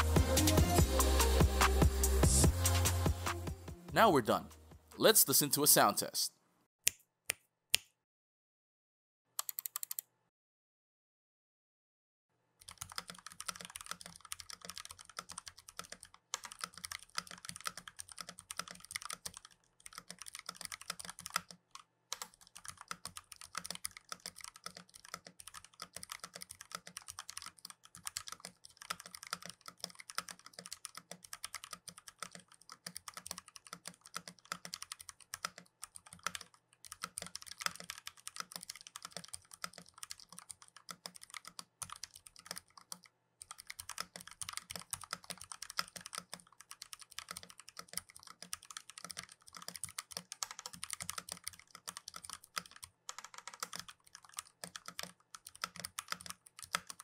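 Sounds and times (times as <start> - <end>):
mechanical keyboard typing: 9.4 - 10.0, 12.6 - 57.0.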